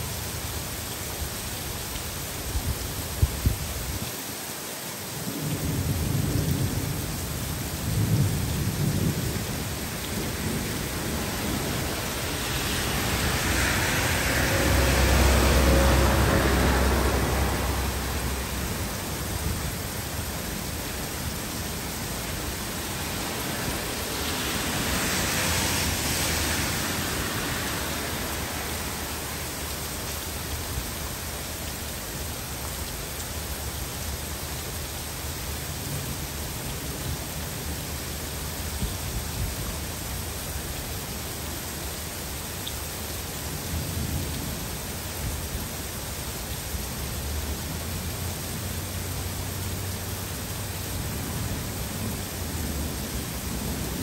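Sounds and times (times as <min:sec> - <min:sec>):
heavy rain on trees and pavement: 0:00.0 - 0:54.0
thunder rumbling: 0:05.3 - 0:29.9.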